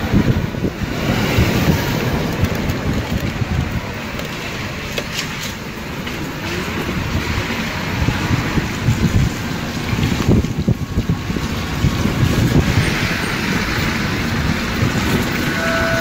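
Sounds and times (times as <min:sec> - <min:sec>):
wind on microphone: 0:00.0 - 0:05.5, 0:06.4 - 0:16.0
road noise: 0:00.0 - 0:16.0
scooter engine: 0:11.8 - 0:16.0.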